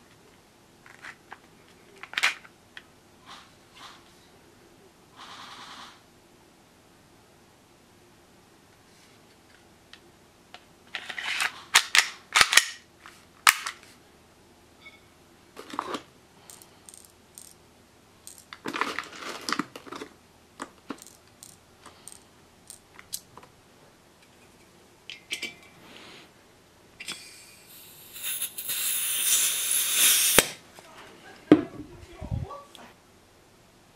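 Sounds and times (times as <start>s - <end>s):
gas hiss: 27.2s - 30.6s.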